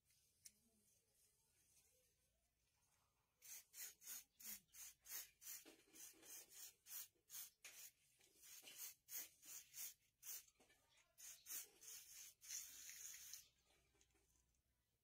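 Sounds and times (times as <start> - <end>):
spray can hissing bursts: 3.4 - 10.5, 11.2 - 13.4.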